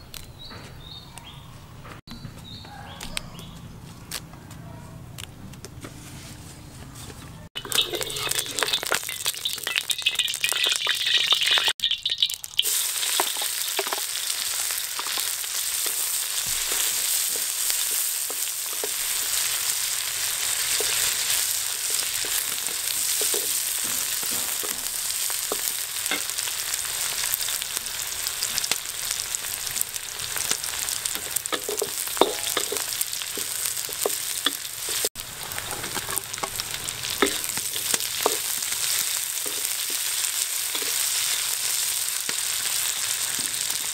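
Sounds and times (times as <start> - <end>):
wooden spatula scraping wok: 5.8 - 9.4, 13.0 - 27.6, 28.5 - 42.0
hot oil sizzling in wok: 7.6 - 43.9.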